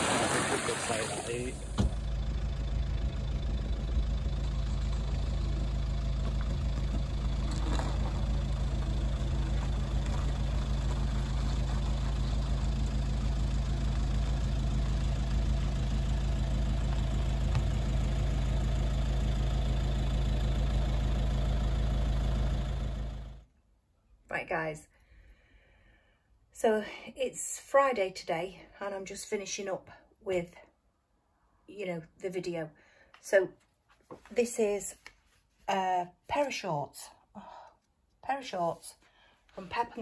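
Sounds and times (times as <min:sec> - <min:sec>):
vehicle engine running: 0:00.8 - 0:23.5.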